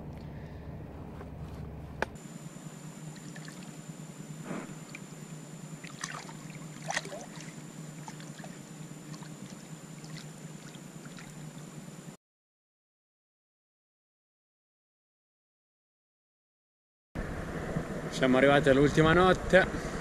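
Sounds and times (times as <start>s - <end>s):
steady hiss and hum: 0.0s - 12.2s
lake water sloshing and splashing: 3.0s - 3.8s, 4.7s - 11.8s.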